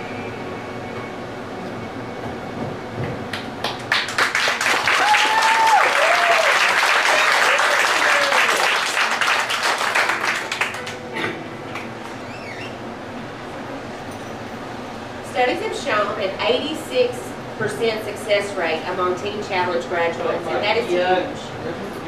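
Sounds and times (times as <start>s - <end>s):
crowd applauding: 3.3s - 12.7s.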